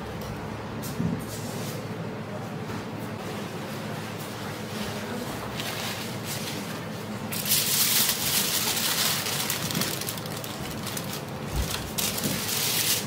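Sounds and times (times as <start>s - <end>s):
aluminium foil crinkling: 7.3s - 13.0s.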